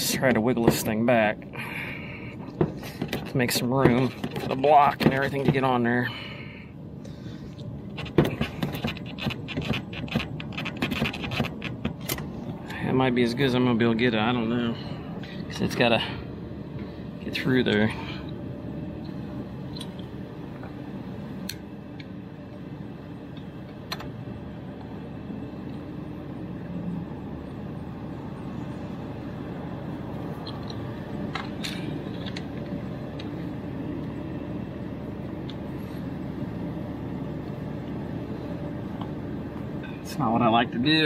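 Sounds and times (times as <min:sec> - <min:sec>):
low machine hum: 0:00.0 - 0:41.0.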